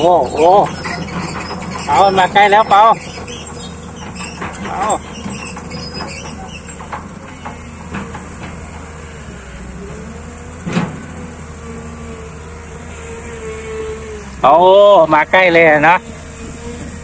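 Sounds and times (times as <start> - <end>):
steel tracks clanking: 0.0 - 11.4
diesel engine with whine: 0.0 - 17.0.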